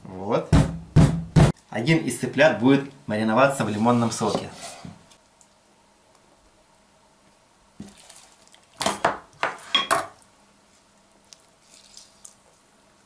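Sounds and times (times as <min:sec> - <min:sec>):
dishes and utensils clattering: 0:08.8 - 0:10.2.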